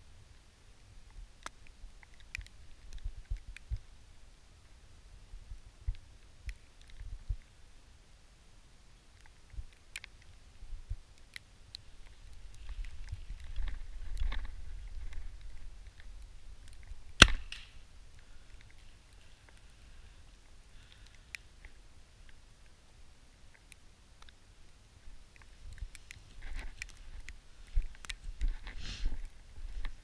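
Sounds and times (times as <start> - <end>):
bow string snap: 17.2 - 17.8.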